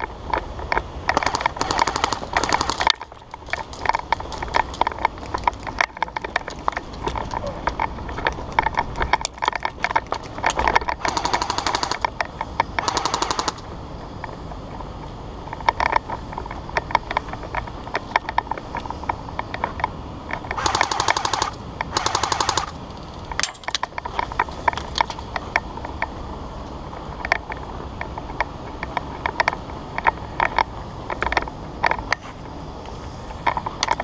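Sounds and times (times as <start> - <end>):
airsoft guns firing bursts: 1.2 - 3.0, 11.0 - 12.0, 12.8 - 13.6, 20.6 - 22.8.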